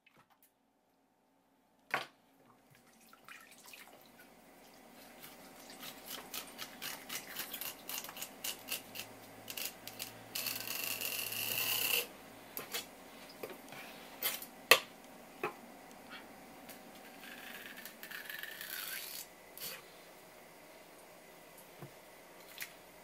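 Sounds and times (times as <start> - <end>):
knife scraping along fish: 5.1 - 12.1.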